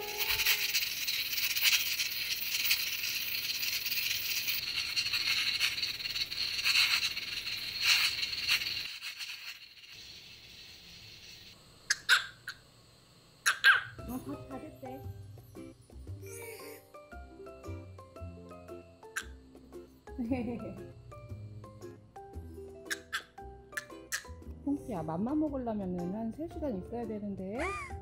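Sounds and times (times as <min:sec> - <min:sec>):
water boiling: 0:00.0 - 0:11.6
small dog yipping: 0:11.9 - 0:12.6, 0:13.4 - 0:14.0, 0:22.9 - 0:24.3, 0:27.6 - 0:27.9.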